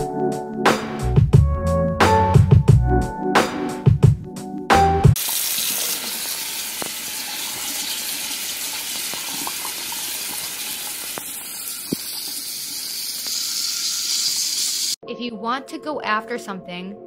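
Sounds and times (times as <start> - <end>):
music: 0.0 - 5.2, 15.0 - 17.0
faucet running water into strainer: 5.2 - 15.0.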